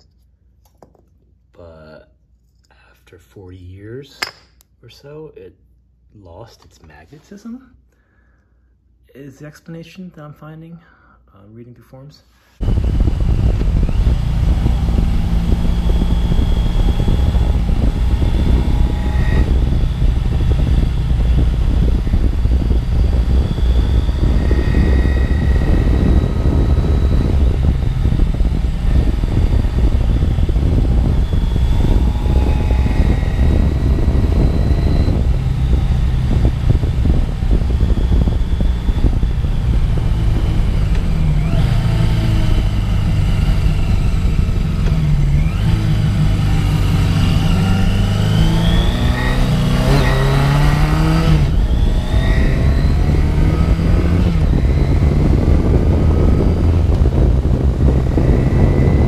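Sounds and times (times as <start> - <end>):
motorcycle engine running: 12.6 - 59.0.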